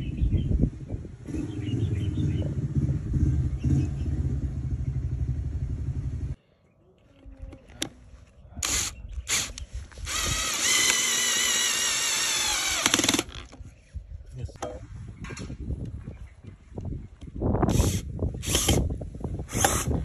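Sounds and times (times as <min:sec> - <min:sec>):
loud low rumble: 0:00.0 - 0:06.4
cordless drill driving screw: 0:08.6 - 0:13.6, 0:17.7 - 0:18.8, 0:19.5 - 0:19.9.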